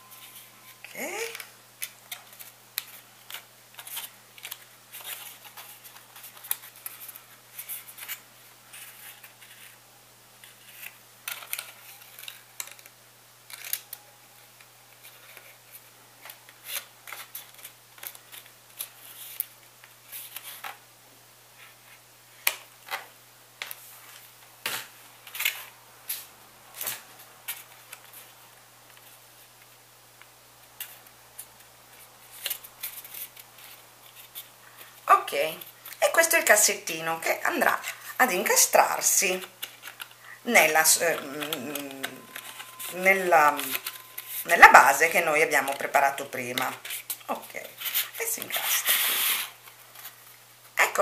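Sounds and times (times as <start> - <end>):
cardstock clicks and rustles: 10.4 - 20.8, 39.4 - 40.2.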